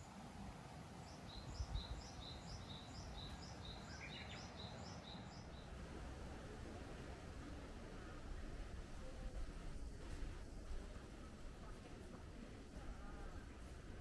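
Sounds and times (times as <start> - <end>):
songbird singing high phrases: 1.1 - 5.7
low outdoor rumble: 5.4 - 14.0.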